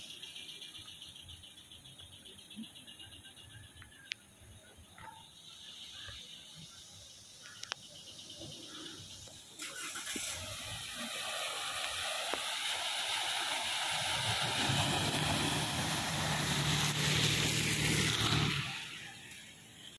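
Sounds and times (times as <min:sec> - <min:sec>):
tyres swishing through water: 0:07.4 - 0:19.9
low engine hum: 0:13.1 - 0:19.9.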